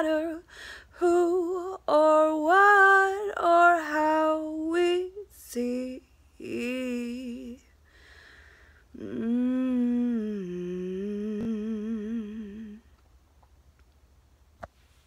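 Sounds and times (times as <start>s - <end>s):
woman humming a long note: 8.9s - 12.8s.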